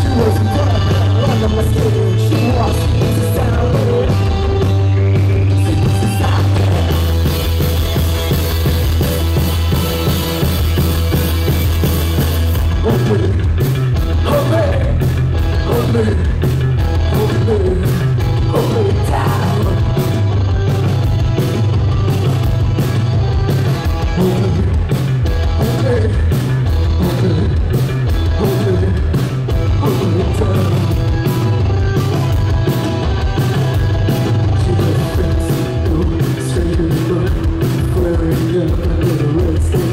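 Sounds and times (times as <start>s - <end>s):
person singing: 0.0s - 7.1s, 12.7s - 13.5s, 14.2s - 20.3s, 25.5s - 31.8s, 33.4s - 39.9s
drums driving beat: 0.0s - 39.9s
electric guitars: 0.0s - 39.9s.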